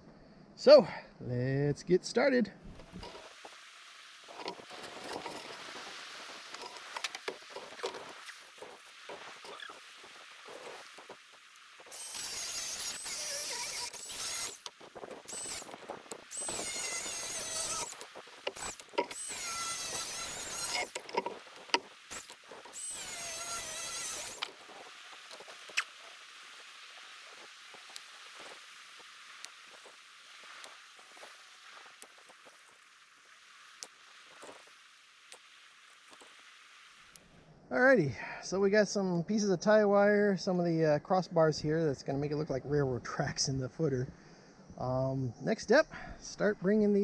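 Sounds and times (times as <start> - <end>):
light rain pattering: 0.6 - 12.2, 14.5 - 16.8, 24.2 - 47.0
angle grinder cutting steel: 11.9 - 15.7, 16.3 - 21.3, 22.1 - 24.5.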